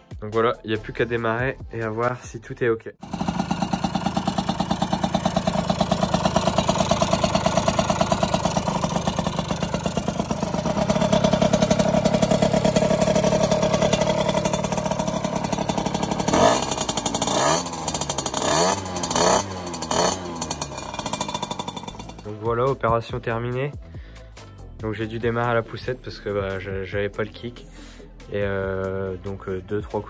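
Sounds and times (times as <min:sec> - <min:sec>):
engine revving: 0:03.0 - 0:22.8
two-stroke engine running: 0:03.0 - 0:22.9.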